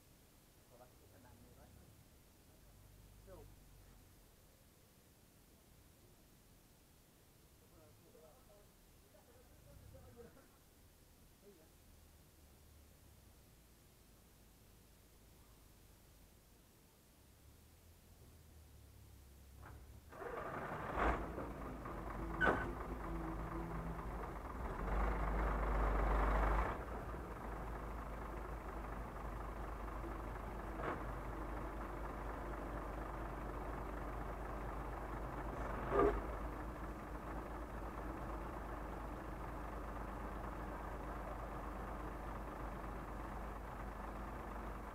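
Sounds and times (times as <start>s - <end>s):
diesel engine starting and running: 18.3s - 44.9s.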